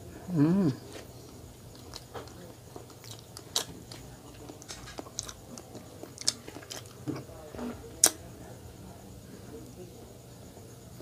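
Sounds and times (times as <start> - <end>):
person chewing: 0.8 - 7.3, 8.0 - 8.2.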